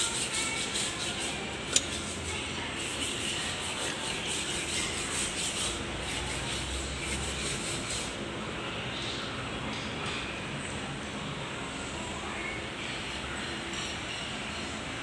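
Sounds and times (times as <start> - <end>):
rubbing scraping noise: 0.0 - 8.2.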